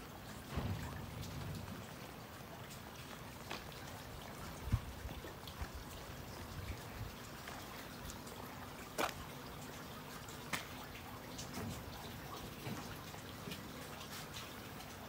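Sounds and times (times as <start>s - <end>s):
rain pattering on water: 0.0s - 15.0s
sharp drip-like clicks: 0.0s - 15.0s
low thump: 0.5s - 2.0s.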